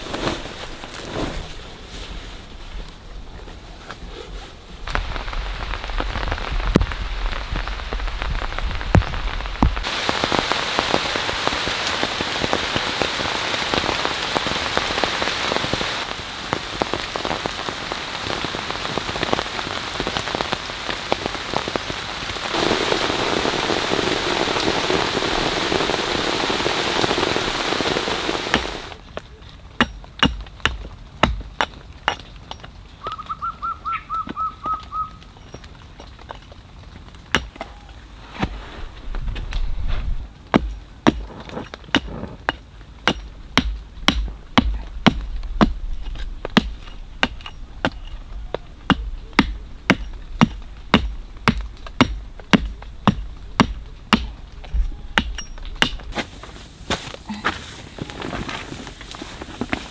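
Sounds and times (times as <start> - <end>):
heavy rain: 4.6 - 29.2, 34.3 - 59.9
bird trilled call: 33.0 - 35.2.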